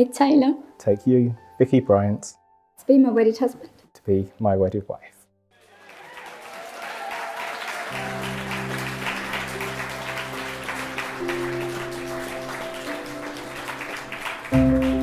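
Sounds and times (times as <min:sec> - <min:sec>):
soft background music: 0:00.0 - 0:05.3, 0:07.9 - 0:15.0
crowd clapping and applauding: 0:05.6 - 0:15.0.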